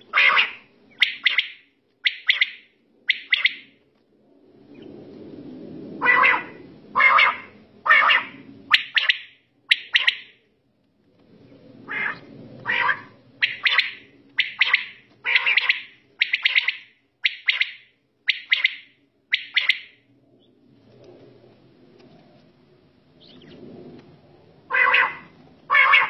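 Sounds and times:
quails calling: 0.1s - 3.7s, 6.0s - 10.3s, 11.9s - 20.0s, 24.7s - 26.0s.

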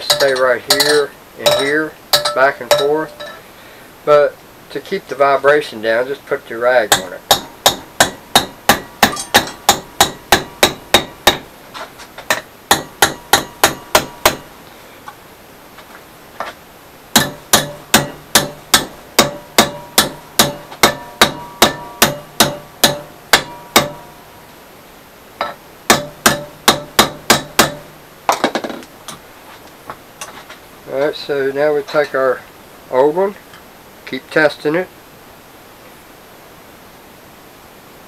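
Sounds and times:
hammer striking steel rod: 0.0s - 3.4s, 6.9s - 11.5s, 12.3s - 14.5s, 17.1s - 24.2s, 25.4s - 28.0s
faint metal ringing: 0.0s - 3.5s, 6.9s - 11.4s, 17.2s - 24.5s.

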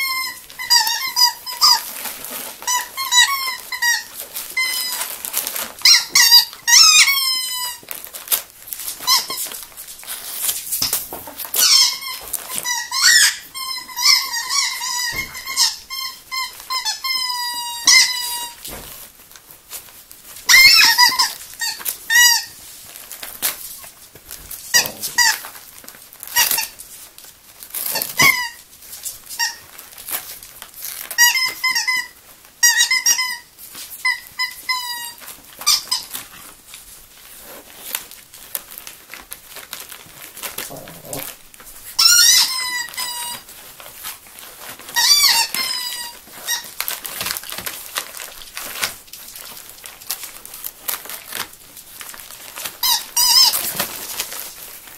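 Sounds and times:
dog whining: 0.0s - 8.4s, 11.1s - 18.7s, 20.4s - 22.6s, 24.6s - 25.6s, 26.3s - 26.8s, 27.8s - 28.6s, 31.0s - 36.5s, 40.2s - 43.9s, 44.7s - 47.6s, 52.6s - 54.3s
wrapping paper rustling: 0.0s - 54.9s.

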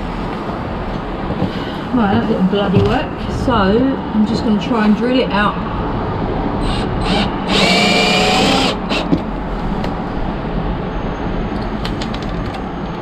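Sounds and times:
cordless drill whining: 6.6s - 9.2s.

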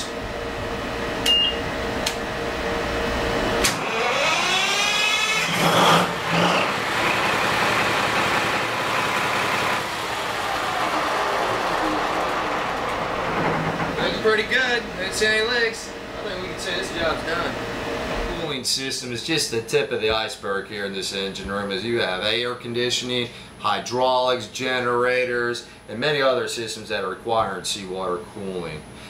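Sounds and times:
engine-room hum: 0.0s - 29.0s
diesel engine running: 3.6s - 18.2s
starter whine: 3.6s - 18.3s.

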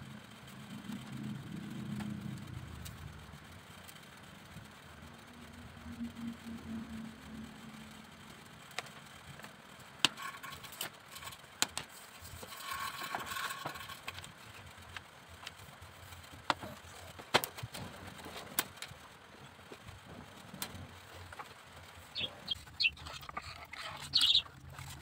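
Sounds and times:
bamboo strips clicking and knocking: 8.7s - 25.0s
scraping rustle: 10.2s - 19.1s.

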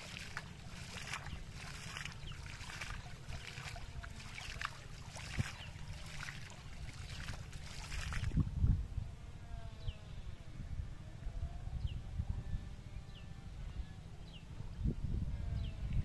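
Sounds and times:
pond water splashing: 0.0s - 8.4s.

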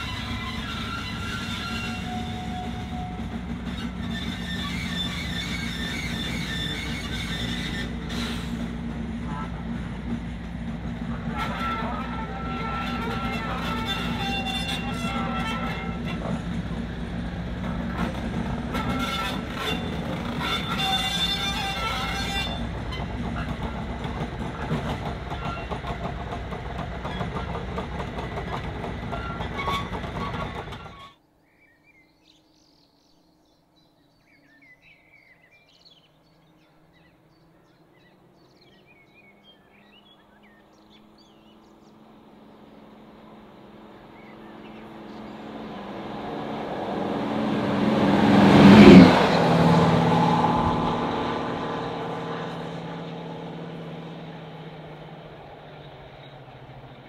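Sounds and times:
locomotive rumbling past: 0.0s - 31.2s, 34.8s - 57.0s
birds chirping: 31.2s - 45.8s.

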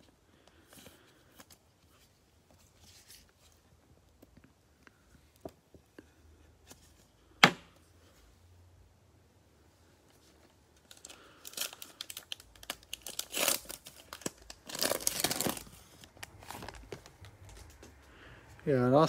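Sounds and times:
plastic sleeve rustling: 0.6s - 4.4s, 10.0s - 18.0s.

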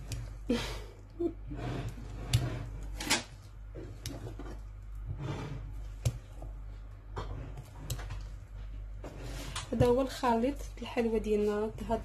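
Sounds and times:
spatula scraping batter in bowl: 1.4s - 10.2s.

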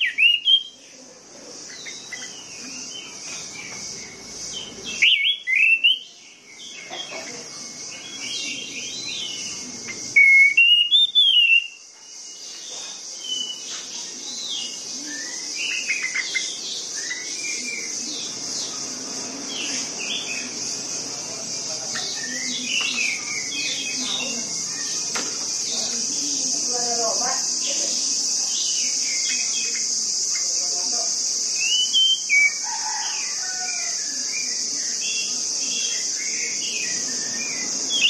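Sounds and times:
thrush singing whistled phrases: 0.0s - 0.8s, 5.0s - 6.1s, 10.1s - 11.8s, 31.6s - 32.6s
steady high hiss: 0.0s - 38.0s.

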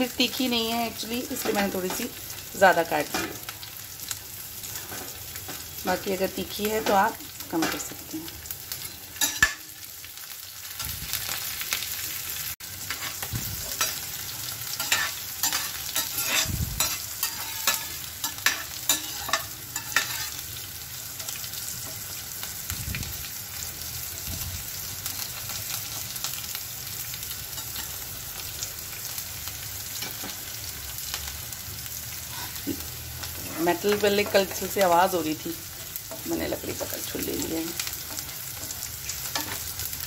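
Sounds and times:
spices sizzling in hot oil: 0.0s - 40.0s
metal spoon scraping pan: 9.2s - 9.6s, 12.9s - 20.4s.

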